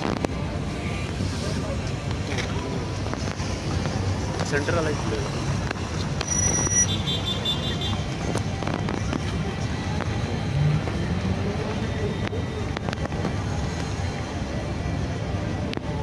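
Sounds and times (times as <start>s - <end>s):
scattered voices: 7.7s - 14.5s.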